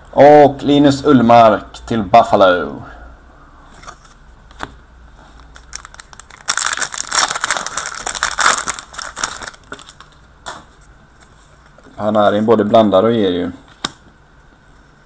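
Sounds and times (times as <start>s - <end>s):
wrapper crinkling and tearing: 5.4s - 10.2s.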